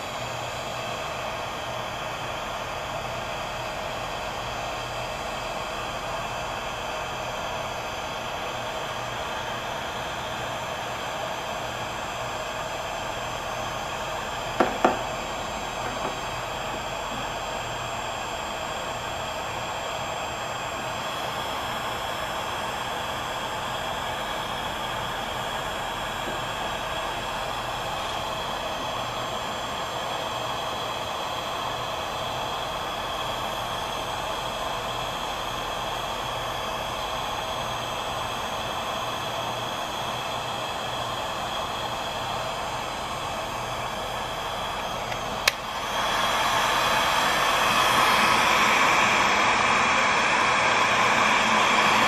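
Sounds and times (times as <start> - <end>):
heat gun blowing hiss: 12.2 - 32.4, 40.9 - 52.0
sharp knocks: 14.6 - 15.1.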